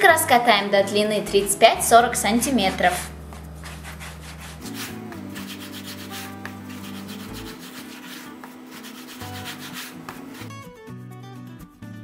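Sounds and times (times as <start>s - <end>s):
soft background music: 0.0s - 12.0s
dough rubbing on wooden board: 2.3s - 10.5s.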